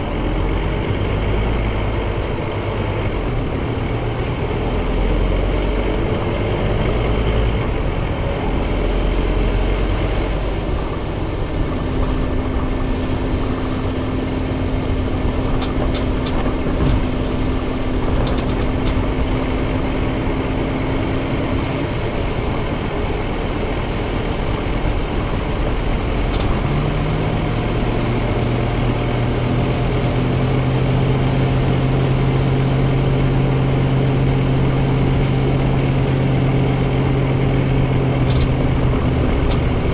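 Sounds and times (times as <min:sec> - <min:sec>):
bus engine and road noise: 0:00.0 - 0:39.9
deeper hum: 0:00.0 - 0:39.9
rattling clicks: 0:38.2 - 0:39.8.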